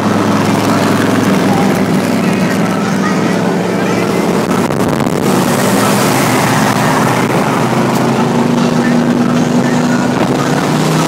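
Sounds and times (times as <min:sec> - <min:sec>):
car engine drone: 0:00.0 - 0:11.0
road noise: 0:00.0 - 0:11.0
wind noise: 0:03.5 - 0:11.0.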